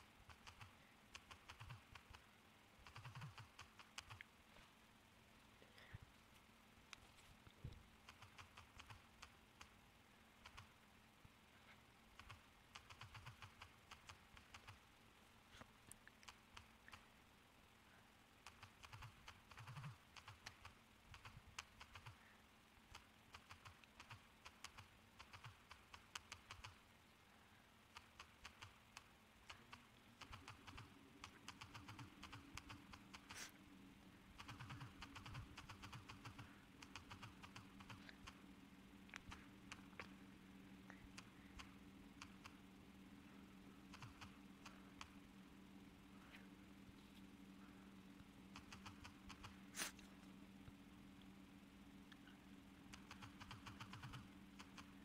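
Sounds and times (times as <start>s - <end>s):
low steady hum: 0.0s - 55.0s
touchscreen typing clicks: 2.8s - 4.2s, 12.2s - 14.8s, 18.4s - 22.2s, 22.9s - 26.8s, 28.0s - 33.5s, 34.4s - 38.4s, 43.9s - 45.2s, 48.5s - 49.9s, 52.9s - 55.0s.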